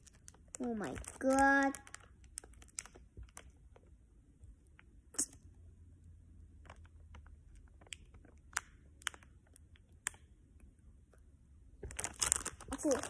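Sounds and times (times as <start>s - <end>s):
plastic packet crackling: 0.0s - 3.5s, 11.8s - 13.0s.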